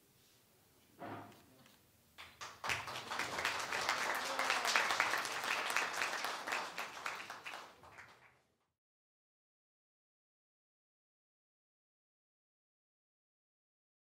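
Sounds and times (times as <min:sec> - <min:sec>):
audience applauding: 0:02.2 - 0:08.5.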